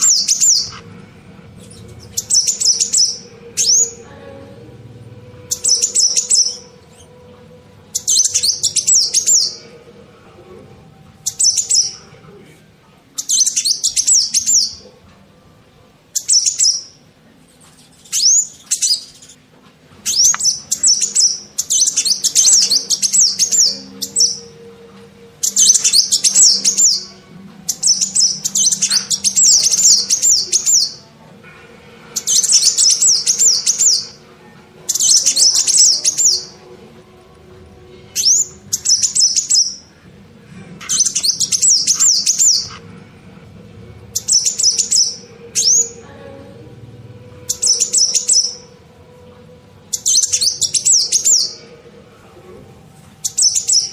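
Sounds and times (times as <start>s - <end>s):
sparrows chirping: 0.0s - 9.8s, 11.1s - 12.2s, 13.2s - 15.0s, 16.1s - 31.1s, 32.1s - 34.3s, 34.9s - 36.6s, 38.1s - 40.0s, 40.8s - 42.8s, 44.0s - 46.4s, 47.4s - 48.8s, 49.8s - 51.8s, 53.2s - 53.9s.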